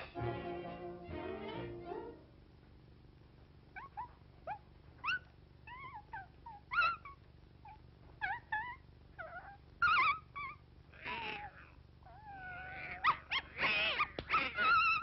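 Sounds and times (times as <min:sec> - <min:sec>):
cartoon dog whimpering and yelping: 0:03.8 - 0:15.0.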